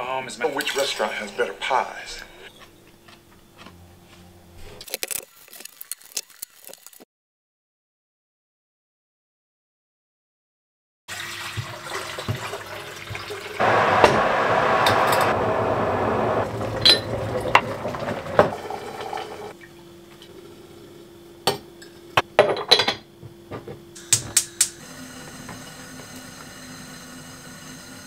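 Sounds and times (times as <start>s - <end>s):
water pouring into kettle: 11.1s - 19.6s.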